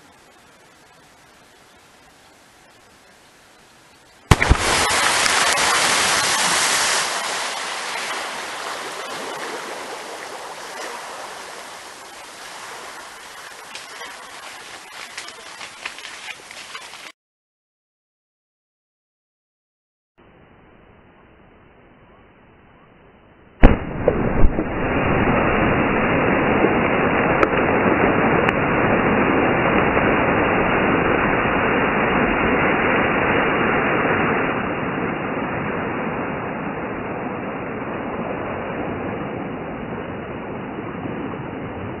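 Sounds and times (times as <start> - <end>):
water raining onto surface: 0.0 - 17.1
underwater explosion boom: 4.3 - 13.0, 23.6 - 39.4
sharp crack: 4.3 - 14.4, 23.6 - 34.1.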